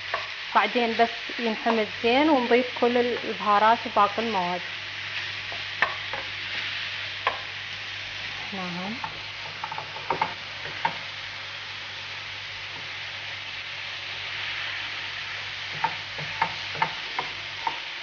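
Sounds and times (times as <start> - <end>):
meat and onion sizzling in a pan: 0.0 - 18.0
spatula scraping a pan: 15.6 - 17.8.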